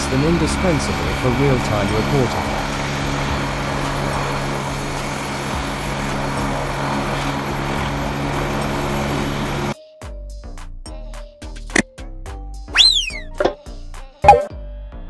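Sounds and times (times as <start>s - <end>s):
helicopter turbines and rotor running: 0.0s - 9.8s.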